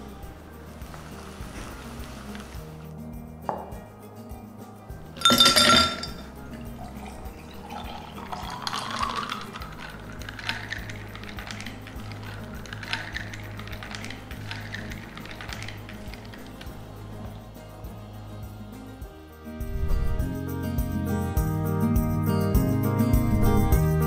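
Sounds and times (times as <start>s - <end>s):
cola pouring and fizzing: 0.0s - 2.9s, 5.0s - 18.0s
glass clink: 5.1s - 16.7s.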